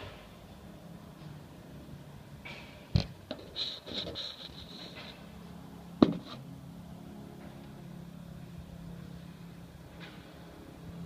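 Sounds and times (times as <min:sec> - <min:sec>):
high scraping: 0:03.4 - 0:05.3.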